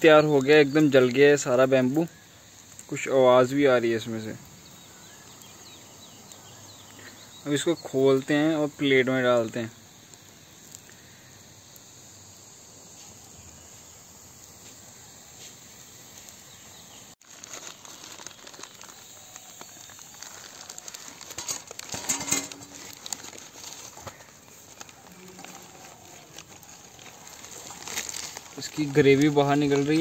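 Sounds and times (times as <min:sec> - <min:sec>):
burnt bamboo crackling and scraping: 0:00.0 - 0:30.0
faint steady hiss: 0:00.0 - 0:30.0.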